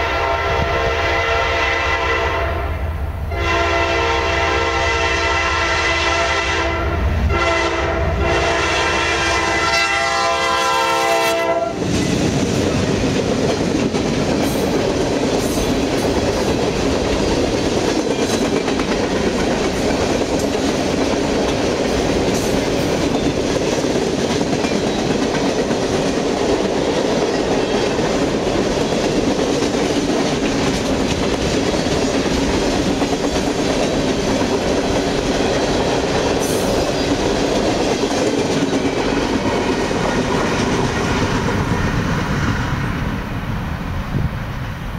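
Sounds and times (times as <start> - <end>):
locomotive horn: 0.0 - 11.9
freight train wheels rumbling: 0.0 - 44.9.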